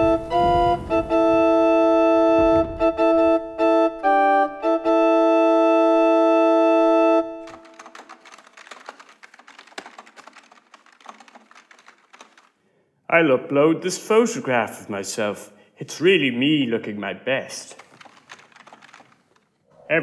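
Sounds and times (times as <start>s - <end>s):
held organ chord: 0.0s - 7.5s
typing on computer keyboard: 7.4s - 12.6s, 17.7s - 19.5s.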